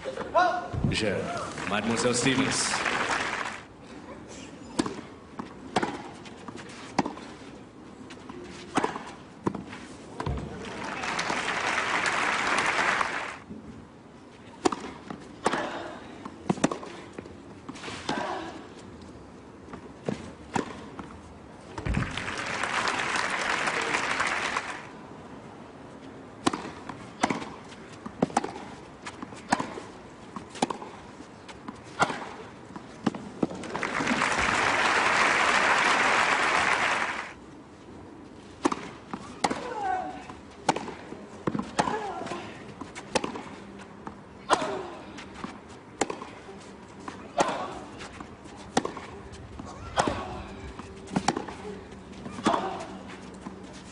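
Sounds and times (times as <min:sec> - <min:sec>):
crowd applause: 0:01.5 - 0:03.6, 0:10.6 - 0:13.4, 0:22.0 - 0:24.9, 0:33.7 - 0:37.4
tennis ball struck by rackets: 0:26.4 - 0:28.7, 0:29.5 - 0:29.8, 0:30.4 - 0:31.0, 0:31.9 - 0:32.4, 0:38.6 - 0:39.7, 0:40.6 - 0:42.1, 0:43.0 - 0:43.5, 0:46.0 - 0:46.4, 0:48.7 - 0:49.1, 0:51.1 - 0:51.6.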